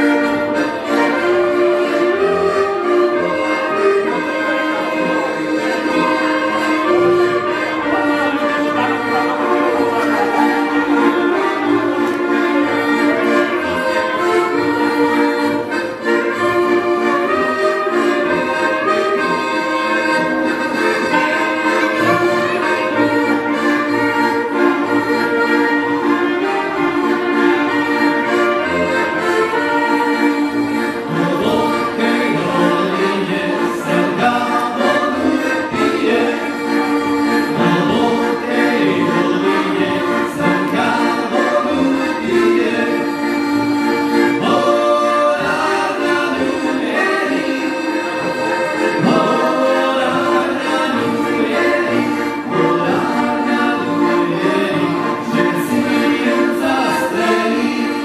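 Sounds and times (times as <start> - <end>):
amplified band backing: 0.0 - 57.9
trumpet and saxophone melody: 0.0 - 58.0.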